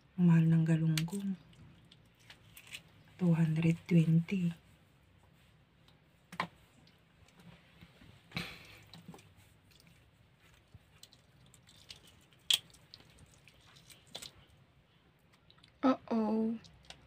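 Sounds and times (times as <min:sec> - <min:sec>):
hands handling wet fish: 0:05.8 - 0:15.5.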